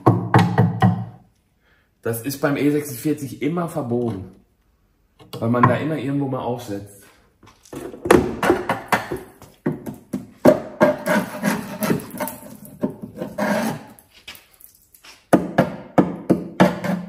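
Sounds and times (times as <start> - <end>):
scraping and knocking on metal: 10.5 - 14.1, 16.6 - 17.0.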